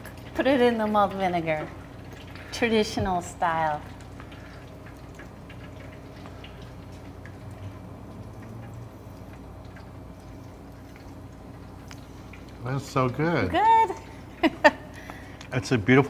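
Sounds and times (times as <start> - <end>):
faint ticks and clicks: 3.8 - 13.1.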